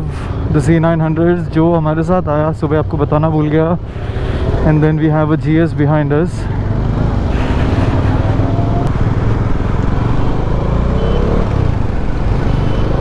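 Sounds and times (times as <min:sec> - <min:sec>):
motorcycle engine: 0:06.4 - 0:13.0.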